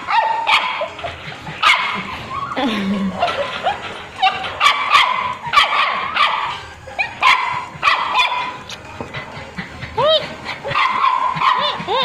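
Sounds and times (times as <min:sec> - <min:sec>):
puppy whining: 0:00.0 - 0:07.4, 0:08.2 - 0:12.0
puppy yipping: 0:00.1 - 0:02.6, 0:03.2 - 0:08.6, 0:10.6 - 0:12.0.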